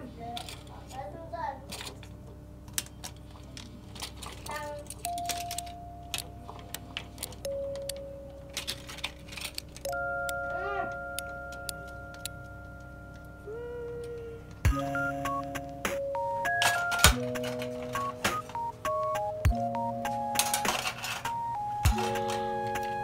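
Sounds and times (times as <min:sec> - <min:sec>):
utensils clinking on metal hooks: 0:04.0 - 0:10.0
soft background music: 0:04.4 - 0:23.0.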